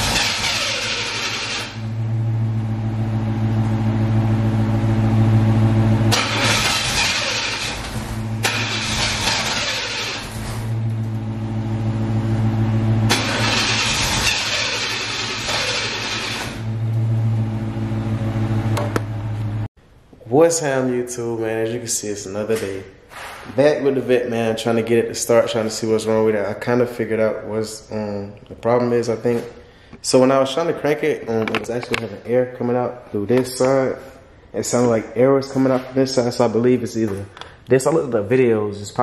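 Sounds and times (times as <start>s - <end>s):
starter cranking engine: 0.0s - 1.8s, 6.1s - 10.4s, 13.1s - 16.6s
steady engine hum: 0.0s - 19.7s.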